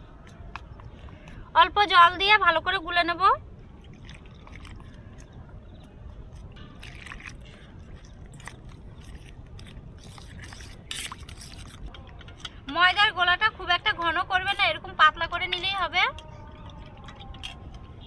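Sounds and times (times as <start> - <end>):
water trickling into a bowl: 3.8 - 11.9.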